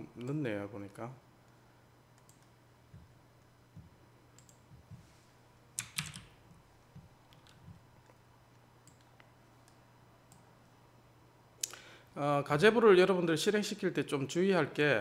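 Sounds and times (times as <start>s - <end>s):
faint low hum: 0.0s - 15.0s
keyboard and mouse clicks: 3.8s - 5.0s, 5.8s - 8.2s, 8.8s - 10.4s.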